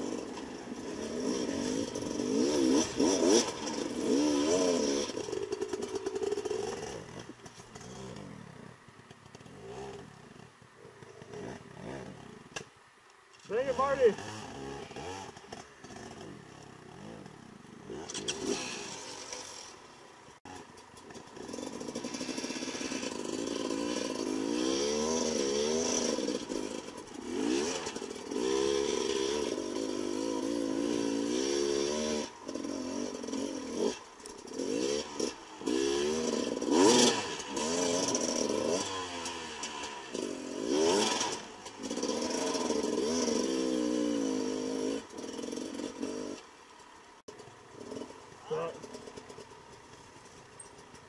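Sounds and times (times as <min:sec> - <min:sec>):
two-stroke motorbike engine revving: 0:00.0 - 0:12.6, 0:13.5 - 0:46.5, 0:47.2 - 0:50.6.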